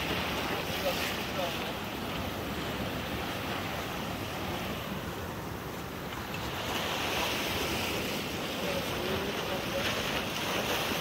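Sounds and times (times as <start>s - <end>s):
surf breaking on rocks: 6.2s - 11.0s.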